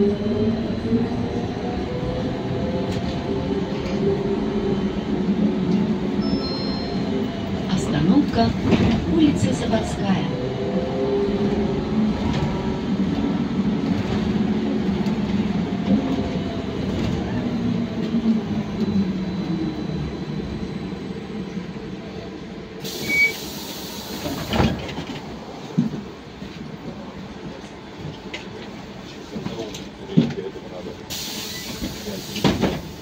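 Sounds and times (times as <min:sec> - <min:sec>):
trolleybus electric drive whine: 0:00.0 - 0:33.0
short beep: 0:06.2 - 0:07.2
air hissing: 0:22.8 - 0:24.5, 0:31.1 - 0:33.0.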